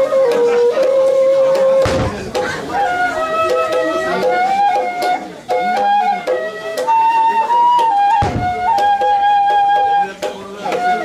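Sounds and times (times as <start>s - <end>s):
flute playing slow melody: 0.0s - 11.0s
low thump: 1.8s - 3.4s, 8.2s - 9.4s.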